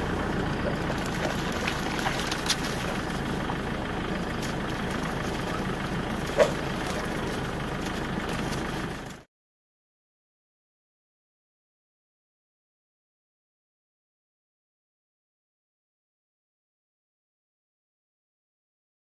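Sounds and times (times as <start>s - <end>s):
vehicle engine idling: 0.0s - 9.3s.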